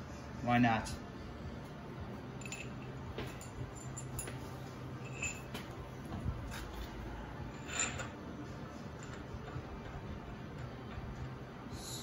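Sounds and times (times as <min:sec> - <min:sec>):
low steady hum: 0:00.0 - 0:12.0
metal tools clinking: 0:02.4 - 0:05.8.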